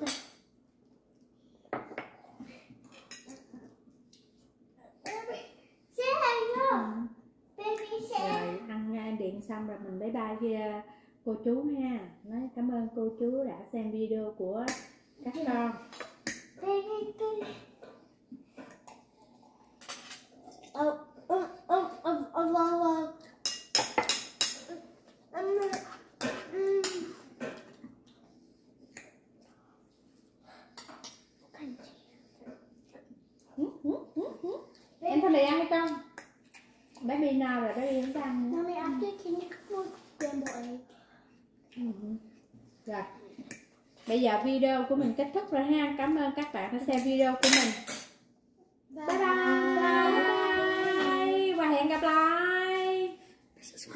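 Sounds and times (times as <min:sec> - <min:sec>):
child making wordless sounds: 0:05.0 - 0:07.0, 0:07.6 - 0:08.6, 0:16.6 - 0:17.7, 0:20.7 - 0:23.2, 0:24.7 - 0:25.9, 0:31.6 - 0:32.0, 0:48.9 - 0:51.4
woman and children calling goodbye: 0:49.1 - 0:52.0.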